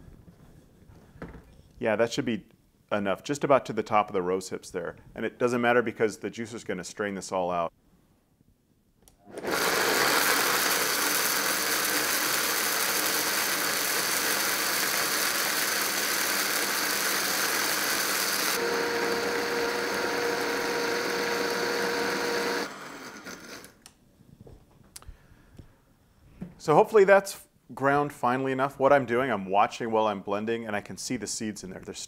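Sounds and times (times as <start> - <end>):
blender grinding: 9.3 - 23.8.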